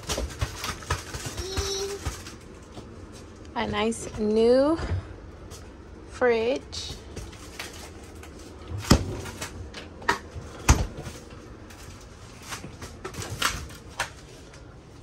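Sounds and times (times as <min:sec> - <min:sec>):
refrigerator doors thumping shut: 0:08.8 - 0:09.4.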